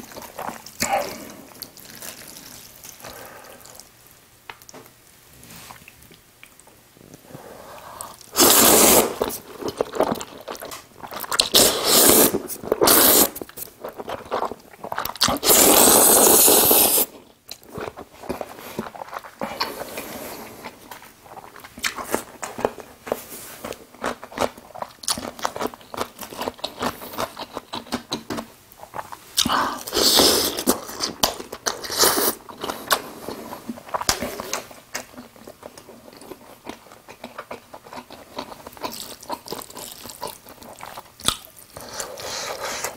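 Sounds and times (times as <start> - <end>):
noodles slurped: 11.3 - 17.1.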